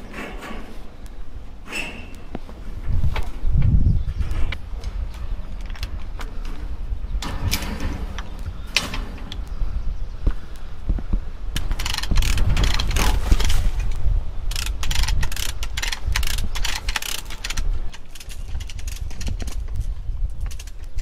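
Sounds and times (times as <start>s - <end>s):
come-along ratchet clicking: 11.6s - 13.5s, 14.5s - 19.8s.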